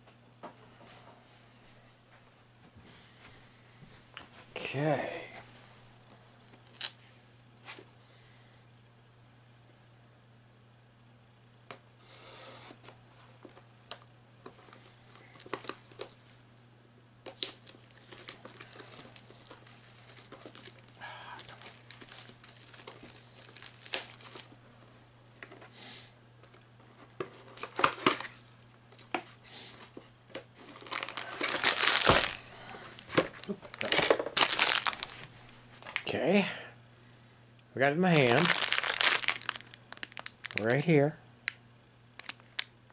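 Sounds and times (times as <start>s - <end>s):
packaging tearing and crinkling: 6.5s - 7.0s, 14.7s - 16.1s, 17.3s - 24.5s, 27.3s - 29.4s, 30.6s - 32.4s, 33.0s - 36.1s, 38.1s - 40.9s, 42.2s - 42.7s.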